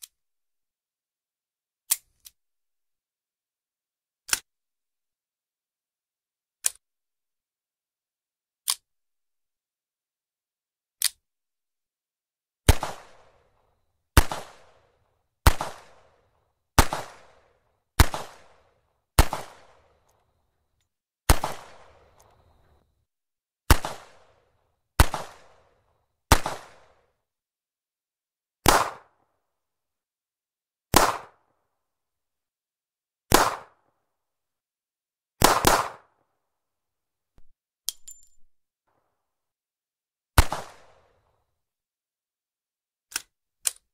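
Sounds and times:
revolver gunshots: 15.4s - 16.0s, 19.2s - 19.9s, 21.3s - 22.2s.

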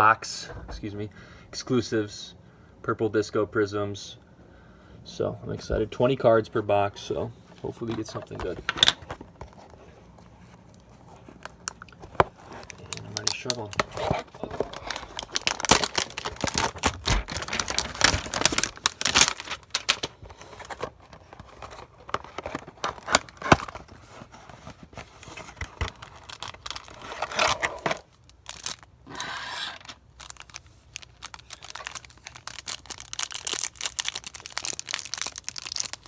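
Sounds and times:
plastic wrap crinkling and ripping: 10.8s - 36.0s.

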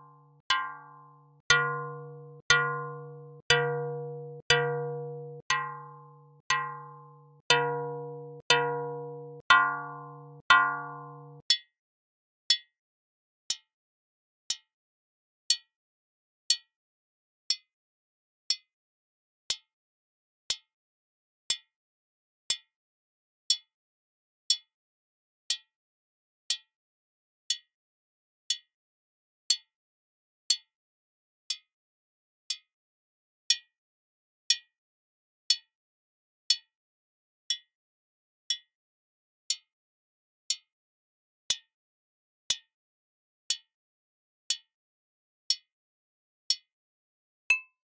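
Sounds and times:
bright metallic pings: 7.5s - 11.4s, 47.5s - 47.7s.

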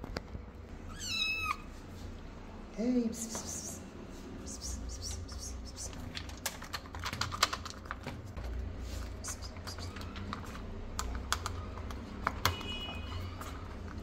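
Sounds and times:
kittens chewing food: 5.3s - 14.0s.

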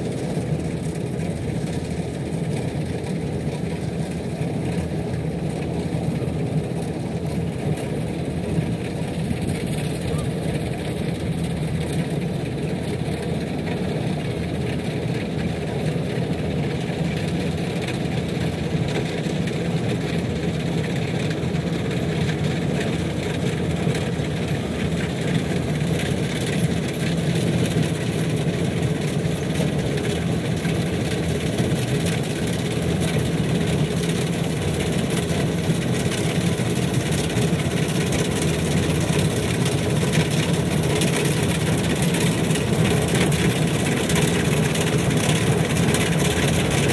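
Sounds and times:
combine harvester engine running: 0.0s - 46.9s.

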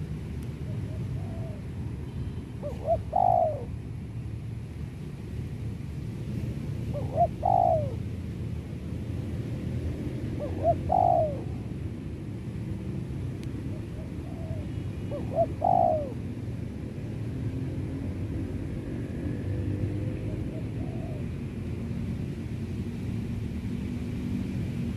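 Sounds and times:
dove cooing: 0.7s - 1.7s, 2.6s - 3.8s, 6.9s - 8.0s, 10.3s - 11.7s, 13.7s - 16.4s, 20.2s - 21.4s.

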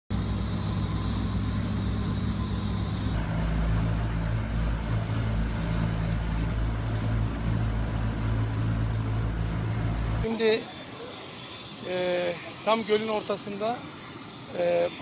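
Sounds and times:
high hiss: 0.1s - 3.2s, 10.2s - 15.0s
motorboat engine hum: 0.1s - 15.0s.

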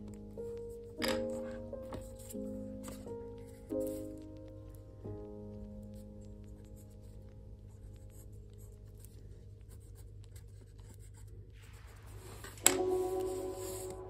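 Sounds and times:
music: 0.0s - 9.6s, 12.1s - 14.0s
pencil scratching on paper: 0.6s - 4.2s, 7.9s - 14.0s.

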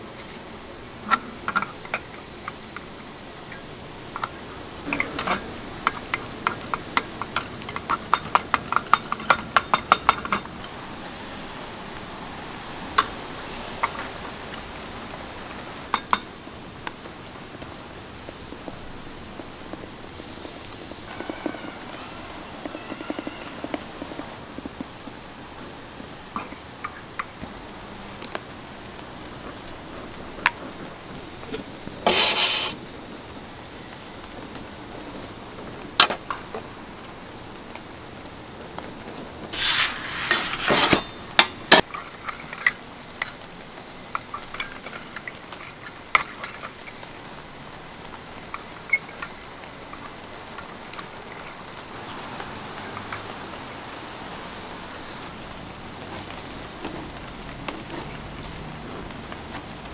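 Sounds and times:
loud scraping: 32.0s - 32.8s, 39.6s - 41.8s
metal tools clinking: 32.1s - 32.8s, 39.6s - 43.4s.

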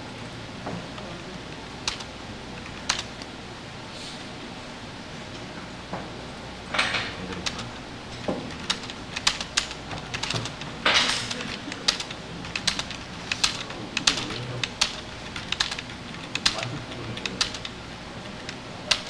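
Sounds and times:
computer mouse clicks: 1.8s - 3.3s, 8.5s - 19.0s.

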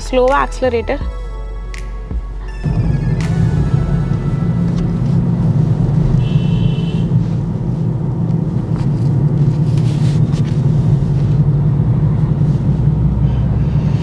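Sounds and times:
high-pitched tone: 0.0s - 6.8s
car engine and road hum: 0.0s - 14.0s.

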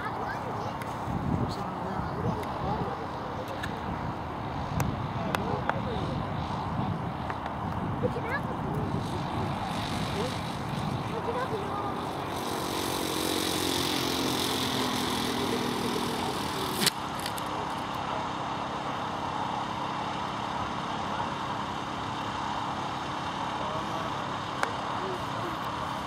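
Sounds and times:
model aircraft motor and propeller: 0.0s - 26.0s
outdoor background noise: 0.0s - 26.0s.

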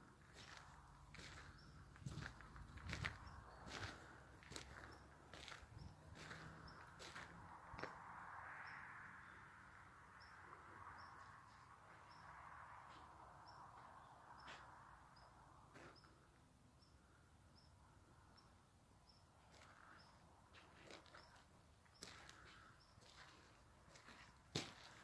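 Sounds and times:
footsteps on gravel: 0.2s - 8.0s, 20.5s - 25.0s.

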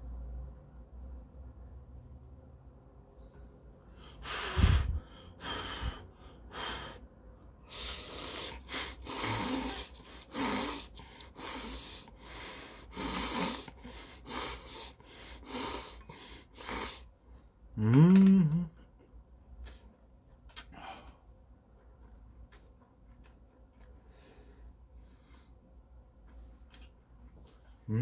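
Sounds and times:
man slurping noodles: 7.7s - 12.1s, 12.9s - 16.0s.

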